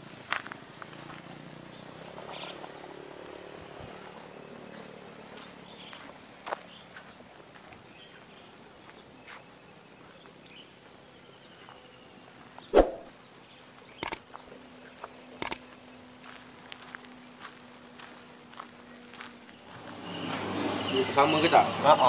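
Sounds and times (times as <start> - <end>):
faint rural outdoor ambience: 0.0 - 22.0
quick double clicks: 14.0 - 14.3, 15.4 - 15.6.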